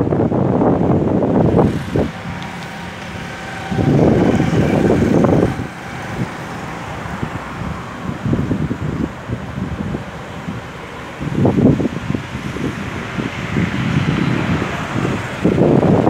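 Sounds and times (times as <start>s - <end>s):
outdoor background noise: 0.0s - 16.0s
wind buffeting microphone: 0.0s - 16.0s.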